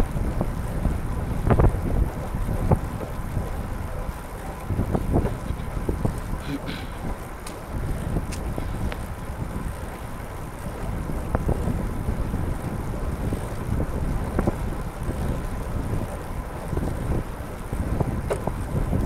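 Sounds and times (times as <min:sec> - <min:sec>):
wind buffeting microphone: 0:00.0 - 0:19.0
faint ticks: 0:04.0 - 0:10.0.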